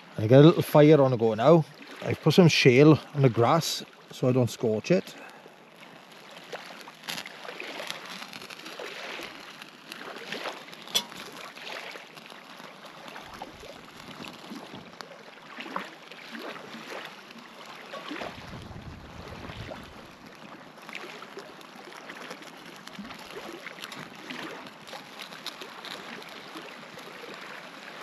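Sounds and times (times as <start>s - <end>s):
campfire crackling: 0.0s - 28.0s
fire pop: 4.1s - 15.1s, 17.9s - 20.4s, 21.2s - 27.4s.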